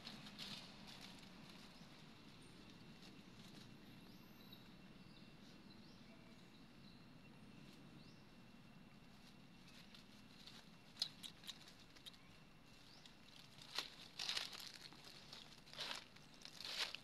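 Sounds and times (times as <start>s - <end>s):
dry leaves crackling underfoot: 0.0s - 4.2s, 9.1s - 17.0s.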